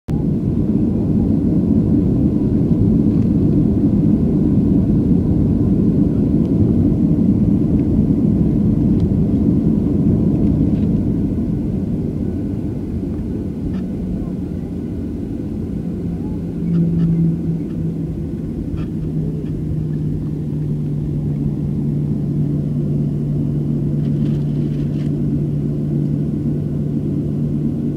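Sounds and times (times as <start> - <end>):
jet engines and wheels rumbling: 0.1 - 27.9.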